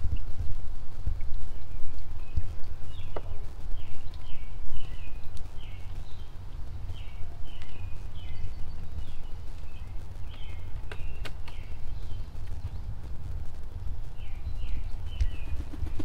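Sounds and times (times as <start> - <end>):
wind buffeting microphone: 0.0 - 16.0
bird chirping: 1.2 - 13.1, 13.9 - 16.0
sharp clicks: 10.3 - 11.6.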